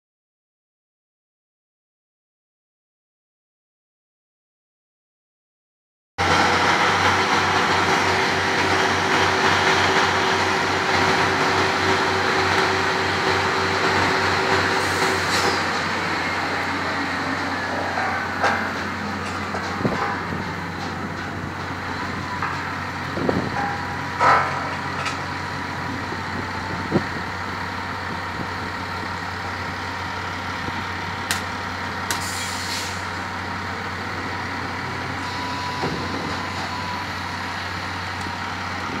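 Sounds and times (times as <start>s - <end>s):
brief hiss: 32.2s - 33.0s.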